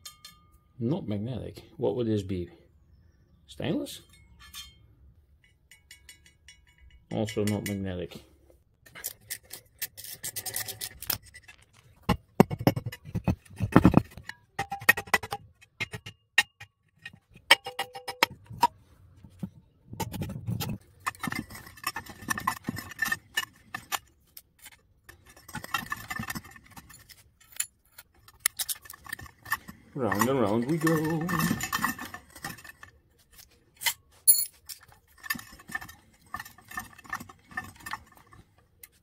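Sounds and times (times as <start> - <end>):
hand tools clinking on metal: 0.0 - 0.7, 3.9 - 8.1, 20.8 - 39.0.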